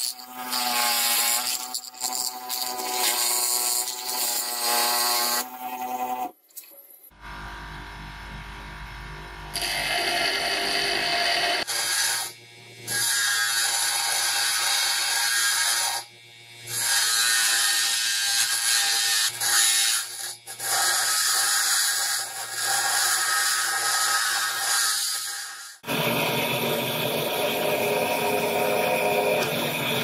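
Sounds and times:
bench grinder humming: 7.1s - 30.0s.

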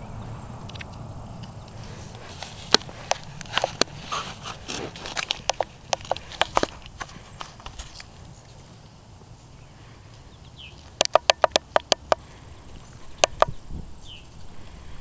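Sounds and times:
sharp clicks: 0.6s - 8.1s, 10.8s - 12.3s, 13.0s - 13.6s
faint bird chirp: 9.4s - 11.0s, 12.2s - 15.0s.

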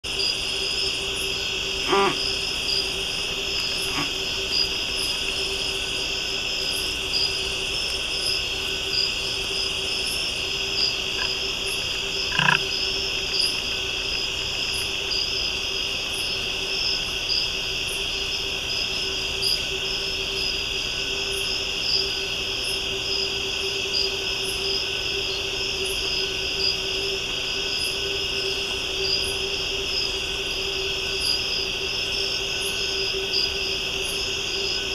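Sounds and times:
high insect chirps: 0.0s - 34.9s
insects shrill buzzing: 0.1s - 18.0s.

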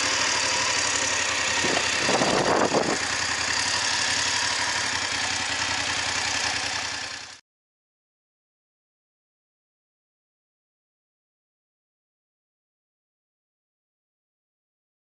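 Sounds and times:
motorcycle engine running: 0.0s - 7.4s.

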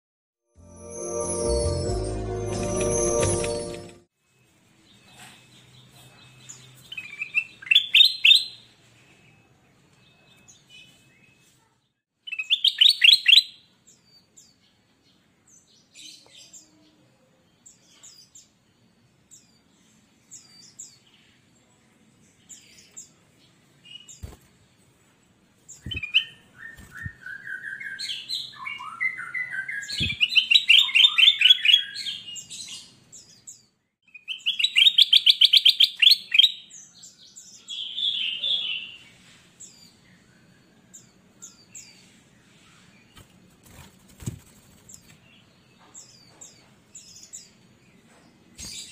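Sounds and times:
bird singing trills: 25.7s - 39.0s.

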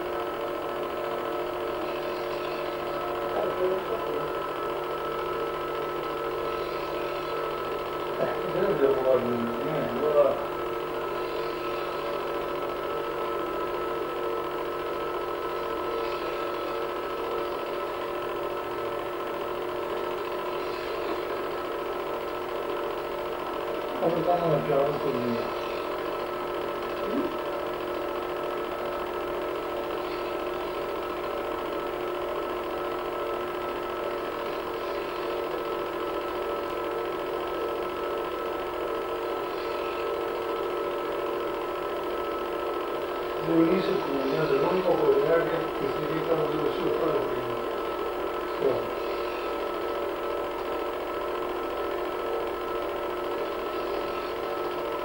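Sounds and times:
film projector whirring: 0.0s - 55.0s.

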